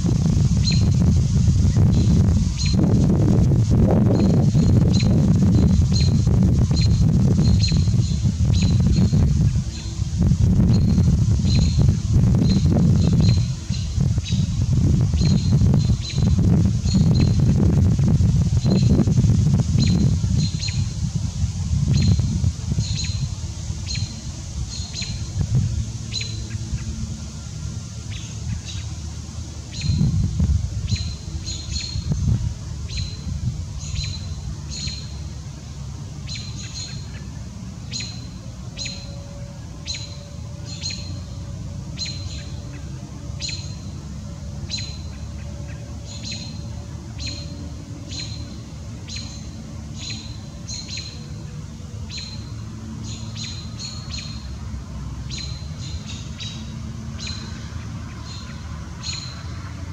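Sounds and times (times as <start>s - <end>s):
low outdoor rumble: 0.0s - 59.9s
small bird chirping: 0.6s - 1.0s, 4.1s - 9.9s, 10.6s - 14.5s.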